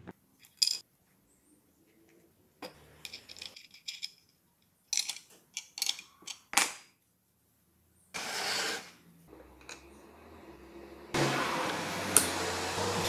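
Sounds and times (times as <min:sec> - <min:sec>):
wooden pieces knocking: 0:00.0 - 0:00.8.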